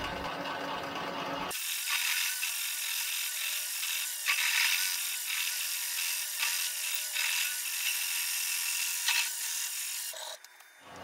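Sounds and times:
lathe tool cutting metal: 0.0 - 10.4.

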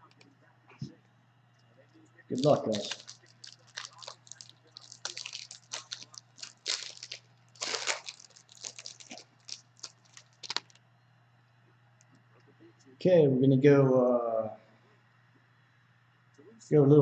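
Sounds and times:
foil wrapper crinkling: 2.3 - 10.8.

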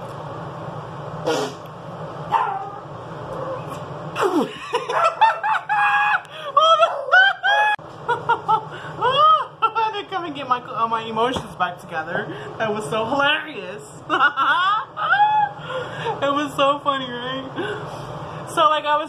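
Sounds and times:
woman laughing hard: 4.2 - 9.7, 14.1 - 15.9.

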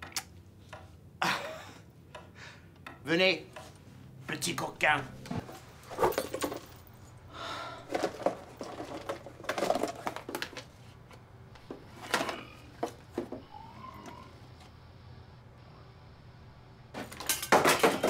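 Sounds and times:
knocks and clatters in wooden box: 7.9 - 10.6.

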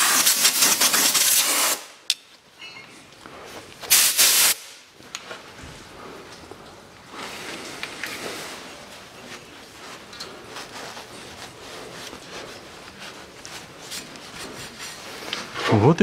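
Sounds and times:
cloth rag rubbing on metal: 8.3 - 16.0.

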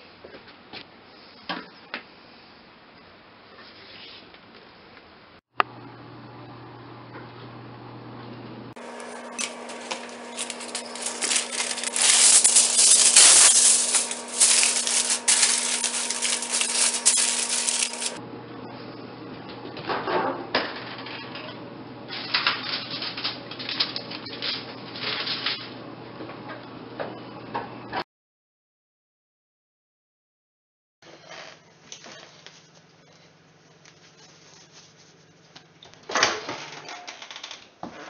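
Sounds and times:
aluminium foil crinkling: 8.8 - 18.2
metal clattering: 9.0 - 18.2.

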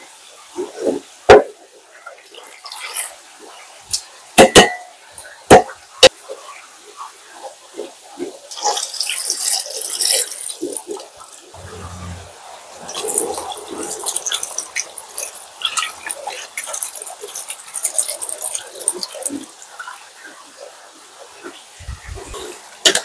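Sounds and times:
water running in a sink: 8.2 - 11.4, 12.9 - 23.0
hissing water: 8.4 - 23.0.

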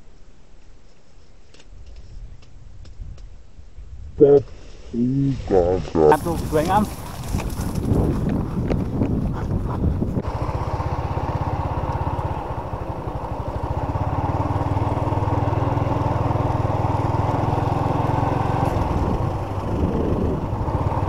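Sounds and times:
small motorcycle engine running: 10.2 - 21.0.

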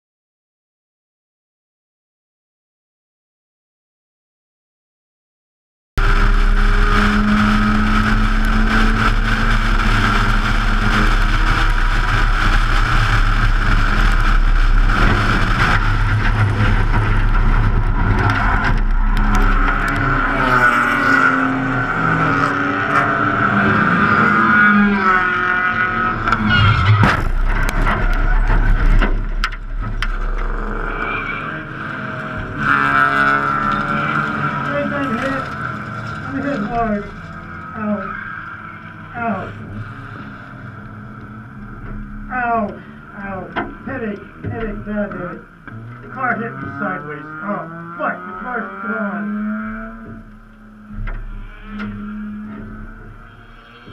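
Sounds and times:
rotary race car engine: 6.0 - 53.9
car crash impact: 26.3 - 30.6.

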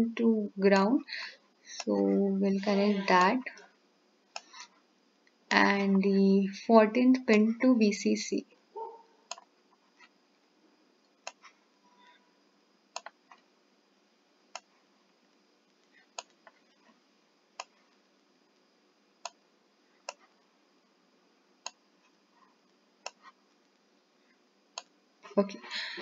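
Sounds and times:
faint background hiss: 0.0 - 26.0
computer mouse clicking: 4.3 - 4.7, 11.2 - 11.5, 13.0 - 13.4, 14.5 - 14.7, 16.2 - 16.6, 17.6 - 17.8, 20.0 - 20.3, 23.0 - 23.4.

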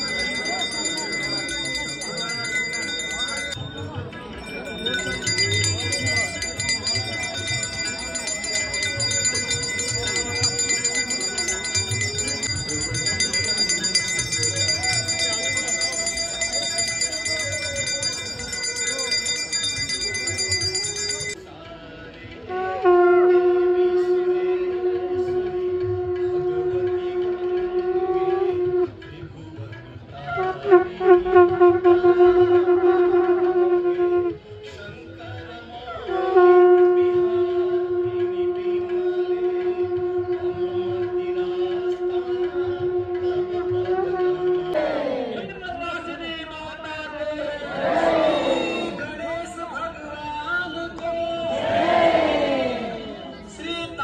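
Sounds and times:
hand bells ringing rapidly: 0.0 - 21.4
conch shell blasts: 4.4 - 21.4, 22.5 - 29.0, 30.4 - 34.5, 36.1 - 44.8
voices singing: 44.7 - 45.5.

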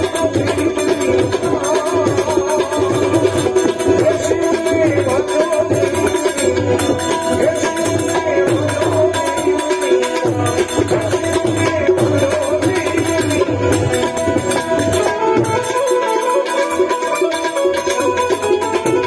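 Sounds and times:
man singing: 0.0 - 17.2
harmonium chords: 0.0 - 19.0
tabla strokes: 0.0 - 19.0.

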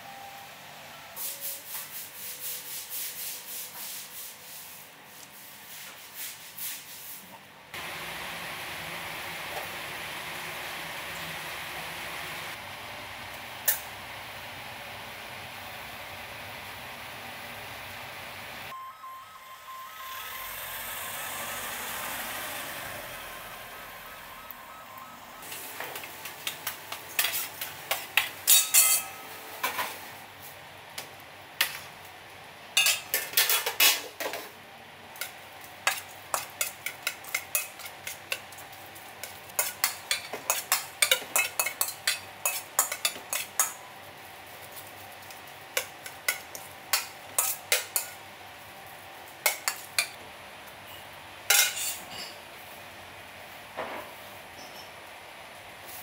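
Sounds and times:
clinks and scrapes in metal bowl: 28.5 - 29.2.

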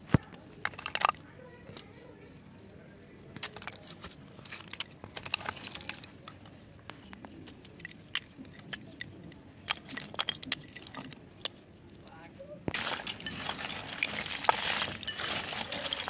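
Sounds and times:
dry earth chunks crackling: 0.0 - 1.9, 3.3 - 16.0.

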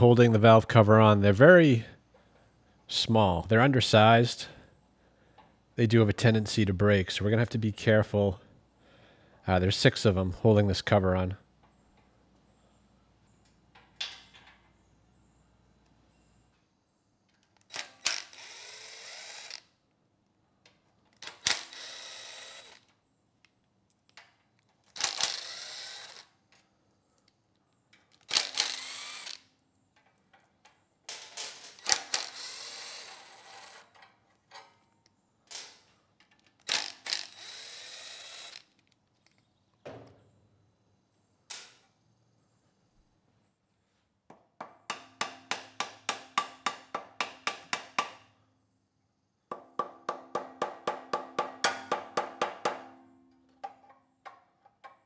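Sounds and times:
impact driver spinning out bolts: 24.9 - 26.3, 28.1 - 29.4, 31.2 - 33.9, 36.5 - 38.8.

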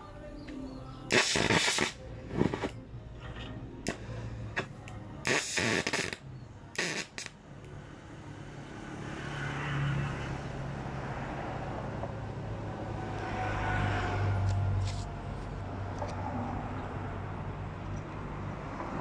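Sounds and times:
short noisy bursts: 1.1 - 2.7, 5.2 - 6.2, 6.8 - 7.3.

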